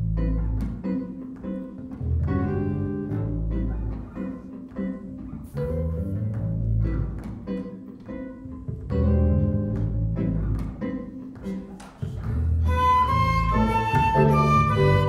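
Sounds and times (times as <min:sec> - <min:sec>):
bass notes: 0:00.0 - 0:01.0, 0:01.9 - 0:04.4, 0:05.2 - 0:07.4, 0:08.7 - 0:10.9, 0:12.2 - 0:15.0
flute melody: 0:12.6 - 0:15.0
sustained guitar and violin chords: 0:12.6 - 0:15.0.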